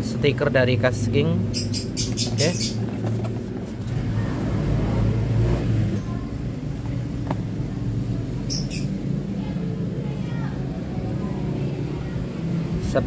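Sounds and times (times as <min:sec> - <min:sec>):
packaging rustling: 0:02.7 - 0:04.0.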